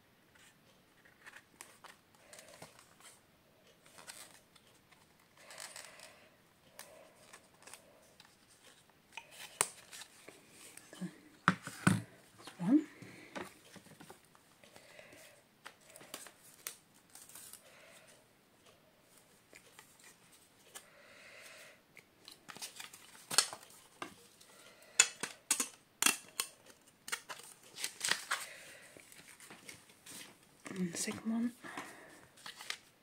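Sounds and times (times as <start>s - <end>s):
card rustling: 3.8s - 18.0s, 22.0s - 24.4s, 26.2s - 32.9s
picture frame clips clicking: 25.0s - 28.4s.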